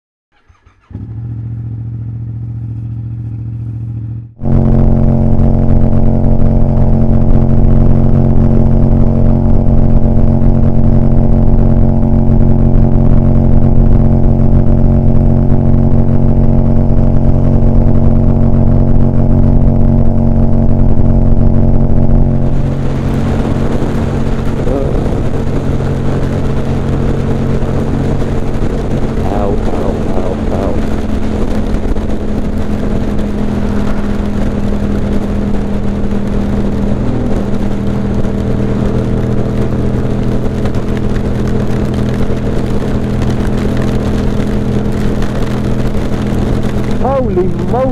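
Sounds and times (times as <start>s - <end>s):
motorcycle engine at steady revs: 0.4s - 47.9s
rushing noise: 20.7s - 40.1s.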